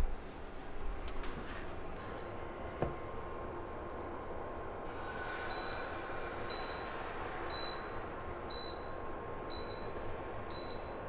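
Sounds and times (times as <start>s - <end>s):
induction burner beeping: 4.9s - 11.0s.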